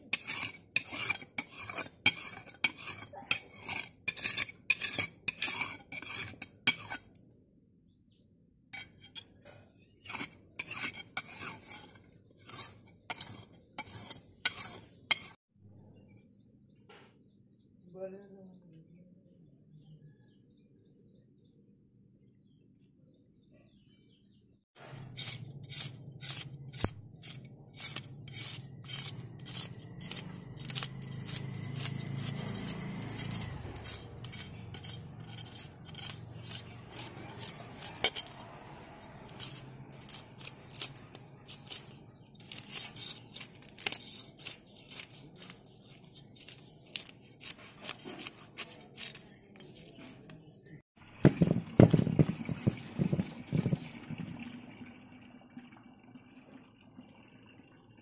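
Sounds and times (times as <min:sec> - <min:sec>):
knife scraping fish scales: 0:00.0 - 0:07.2, 0:08.8 - 0:15.4, 0:24.8 - 0:52.3
scales clicking on concrete: 0:00.1 - 0:07.2, 0:25.1 - 0:52.3
bird chirps: 0:12.0 - 0:27.3.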